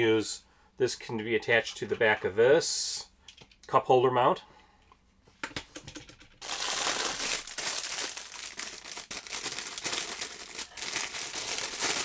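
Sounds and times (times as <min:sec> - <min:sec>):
plastic bags crinkling: 0:06.4 - 0:12.0.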